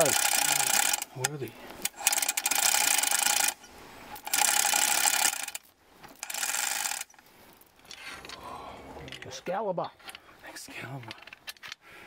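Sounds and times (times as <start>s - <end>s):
chain ratcheting clicks: 0.0s - 3.6s, 4.2s - 7.2s.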